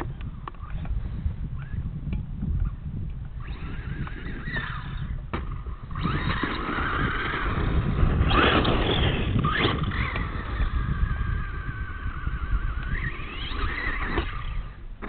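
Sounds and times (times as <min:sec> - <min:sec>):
wind rumble on microphone: 0:00.0 - 0:15.0
radio-controlled truck motor whining: 0:03.4 - 0:14.9.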